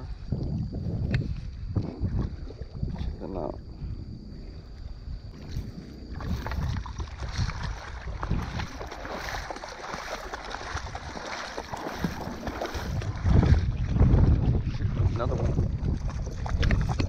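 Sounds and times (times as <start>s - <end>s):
water splashing around wading legs: 5.3s - 17.0s.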